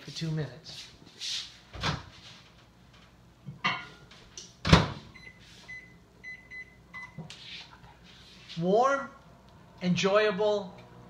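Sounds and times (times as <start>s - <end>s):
short keypad beeps: 5.2s - 7.2s.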